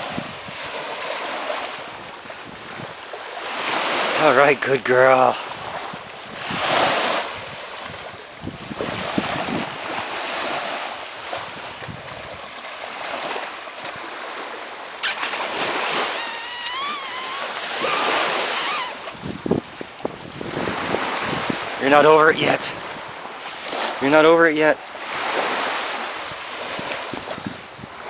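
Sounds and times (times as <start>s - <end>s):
waves washing onto beach: 0.0s - 28.0s
sharp clicks: 15.0s - 17.9s
high wavering cry: 15.0s - 19.1s.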